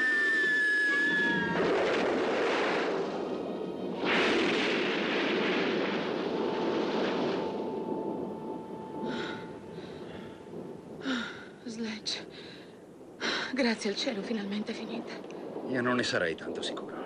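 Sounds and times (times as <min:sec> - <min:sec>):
loud crash: 0:01.0 - 0:03.3, 0:04.0 - 0:07.6
rushing crashing noise: 0:01.1 - 0:08.3
background music: 0:02.4 - 0:09.1.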